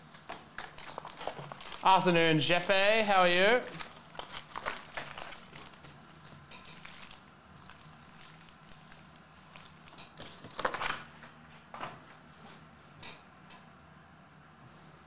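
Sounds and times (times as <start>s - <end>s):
plastic wrappers crinkling: 0.0s - 2.1s, 3.6s - 11.3s.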